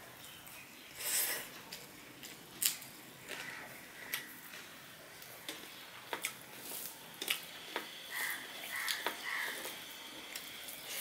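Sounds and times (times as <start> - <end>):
wet squishing of food: 1.5 - 11.0.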